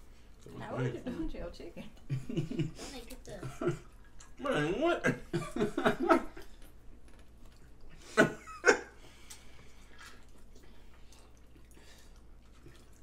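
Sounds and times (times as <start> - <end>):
faint clicking of people eating: 6.3 - 8.0, 9.0 - 13.0.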